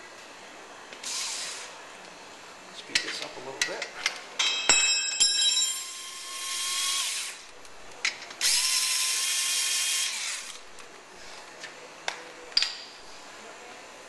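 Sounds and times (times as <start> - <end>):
cordless power tool spinning: 5.8 - 7.5, 8.4 - 10.6.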